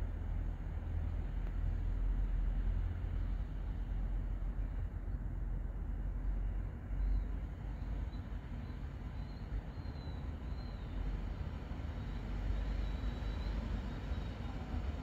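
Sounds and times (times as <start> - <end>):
faint high wavering whistle: 12.0 - 14.6.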